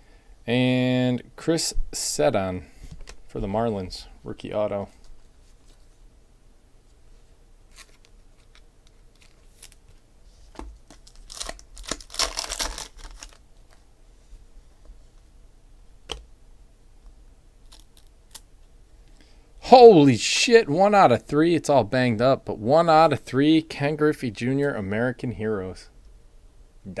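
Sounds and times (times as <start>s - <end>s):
wrapper tearing and crinkling: 7.7s - 9.8s, 10.9s - 13.4s
cards rustling and clicking: 7.7s - 13.8s.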